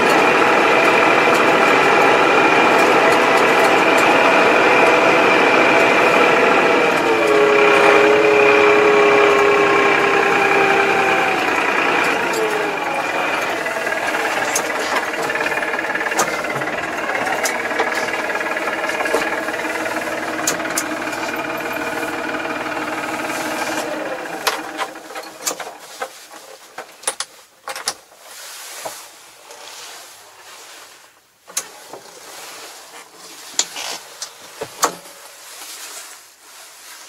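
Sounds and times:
tractor engine running: 0.0 - 27.0.

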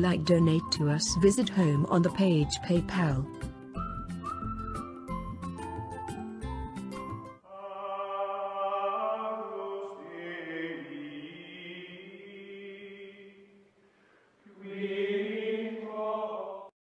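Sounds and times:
slow choral chanting: 7.4 - 13.7, 14.4 - 16.7.

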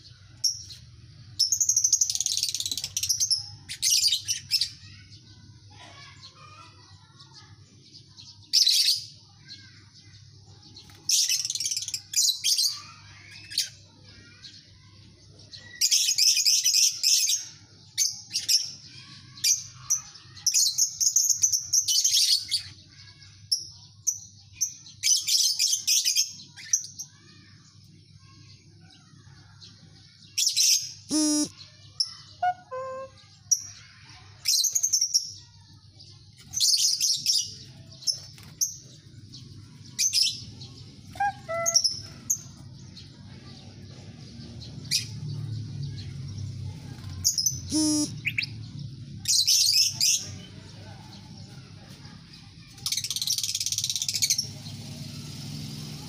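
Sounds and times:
lovebirds chattering: 30.6 - 33.4, 36.0 - 46.1, 46.7 - 51.7.

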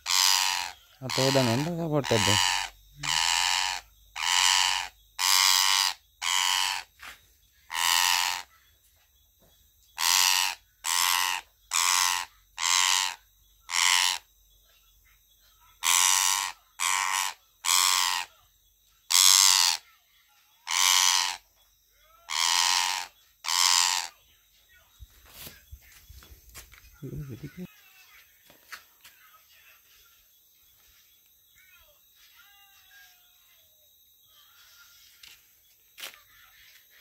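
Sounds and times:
parakeet screeching: 0.0 - 6.9, 7.7 - 8.5, 10.0 - 14.2, 15.8 - 18.3, 19.1 - 19.8, 20.6 - 21.4, 22.3 - 24.1.

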